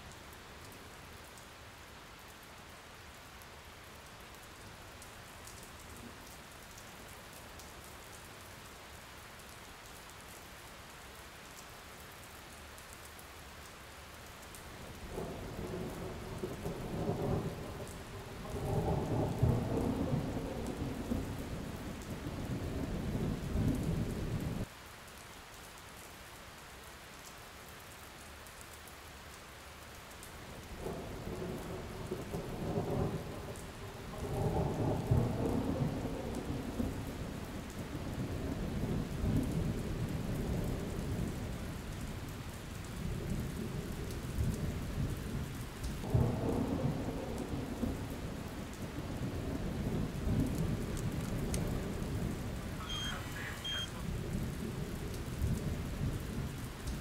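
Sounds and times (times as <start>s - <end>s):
steady rain: 0.0s - 57.0s
rolling thunder: 15.2s - 21.8s.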